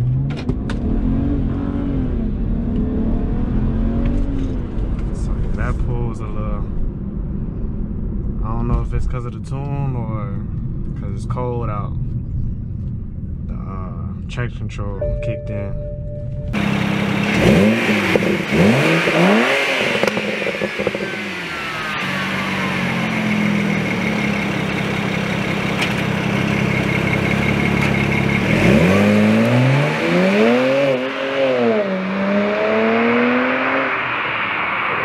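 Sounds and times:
car engine revving: 0:00.0 - 0:09.2, 0:16.5 - 0:35.0.

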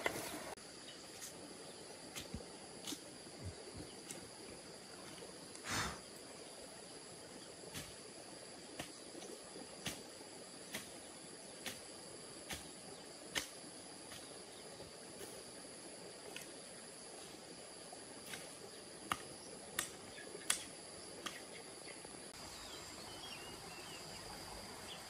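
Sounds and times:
insect chirring: 0:00.5 - 0:25.0.

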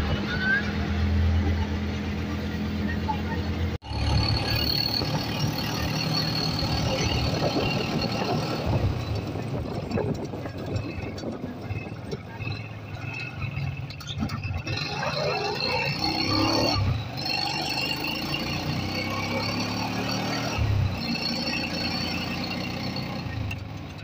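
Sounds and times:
high-pitched squeal: 0:00.0 - 0:23.6
motorcycle engine running: 0:02.3 - 0:24.0.

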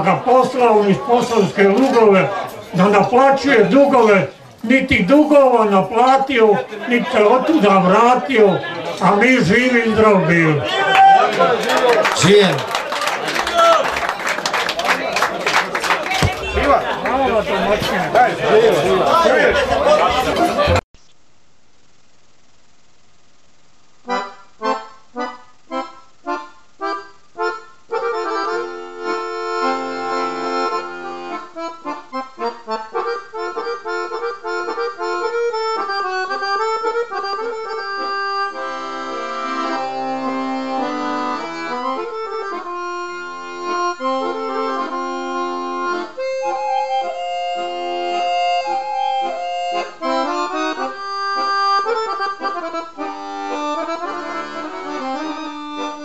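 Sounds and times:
accordion playing: 0:00.0 - 0:10.6, 0:24.0 - 0:56.0.

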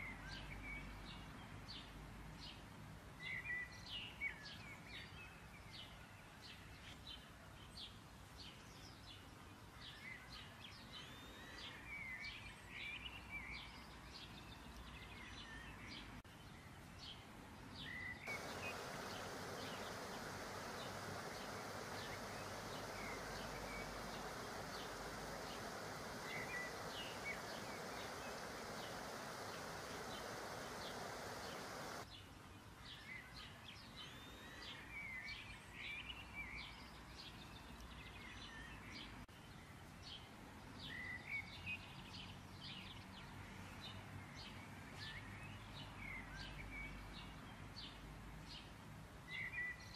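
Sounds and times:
dough deep-frying in oil: 0:18.3 - 0:32.0.

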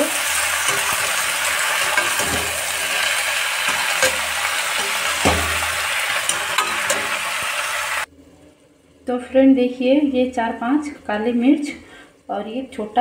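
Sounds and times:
vegetables sizzling in oil: 0:00.0 - 0:08.1
spatula knocking against pan: 0:03.7 - 0:07.2.

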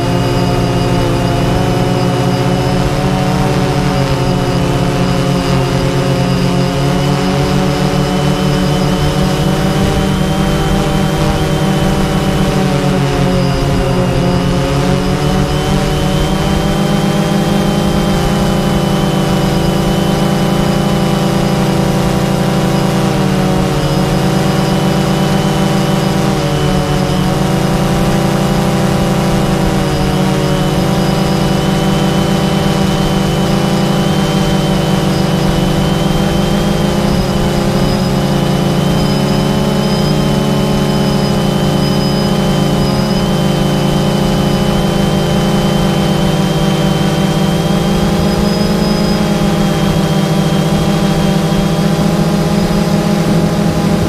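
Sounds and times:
drone motors and propellers: 0:00.0 - 0:54.0.

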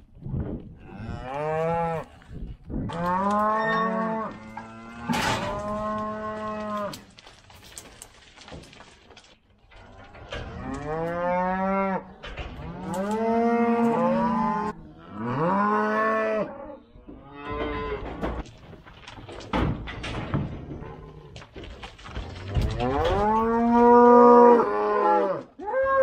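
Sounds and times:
cattle mooing: 0:10.6 - 0:18.0, 0:22.8 - 0:26.0
knocks and rattles: 0:12.1 - 0:13.9, 0:17.1 - 0:23.8.

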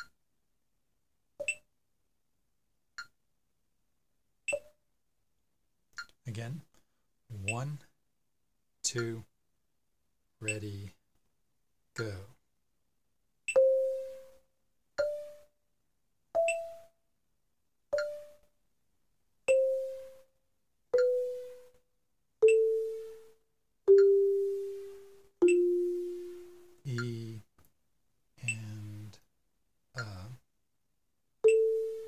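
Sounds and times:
slow marimba notes: 0:13.6 - 0:14.4, 0:21.0 - 0:21.7, 0:22.4 - 0:23.3, 0:23.9 - 0:27.4, 0:31.5 - 0:32.0.

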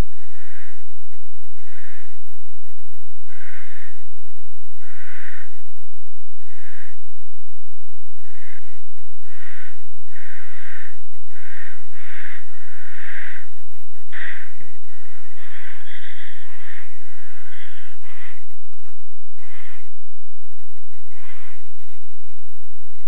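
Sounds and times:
barn owl screeching: 0:00.2 - 0:00.8, 0:01.6 - 0:02.2, 0:03.2 - 0:04.0, 0:04.8 - 0:05.6, 0:06.4 - 0:07.0, 0:08.2 - 0:20.0, 0:21.1 - 0:22.3.

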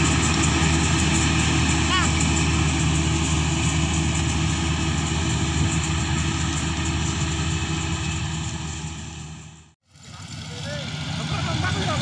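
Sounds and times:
combine harvester droning: 0:00.0 - 0:12.0.

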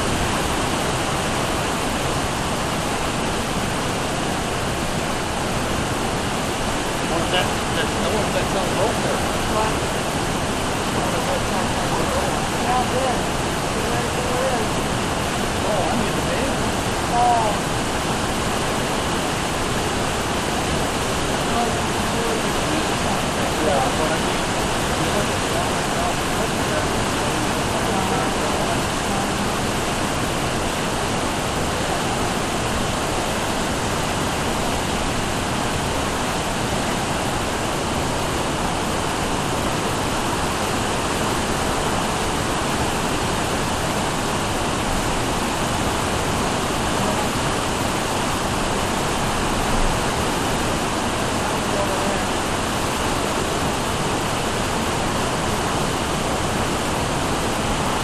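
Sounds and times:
floodwater rushing: 0:00.0 - 0:58.0.

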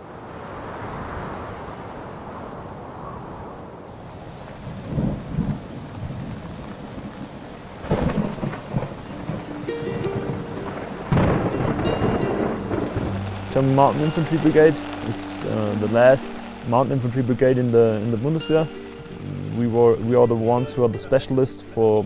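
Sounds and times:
rain hiss: 0:00.0 - 0:22.0
thunder rumbles: 0:04.6 - 0:19.7
loud thunderclap: 0:07.8 - 0:14.8.

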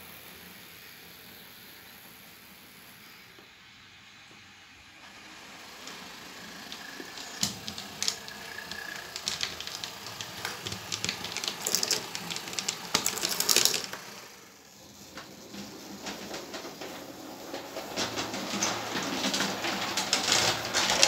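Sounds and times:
model tram clicking and rattling: 0:05.1 - 0:21.0.

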